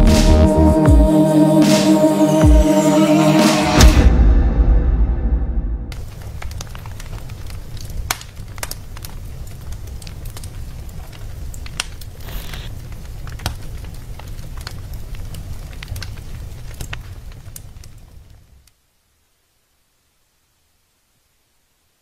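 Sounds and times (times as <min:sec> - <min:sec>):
fire crackling: 0:05.9 - 0:19.4.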